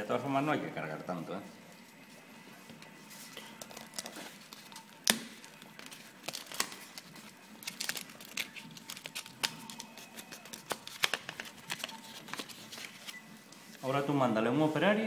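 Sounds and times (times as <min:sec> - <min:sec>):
cardboard crackling and snapping: 0:03.8 - 0:13.0.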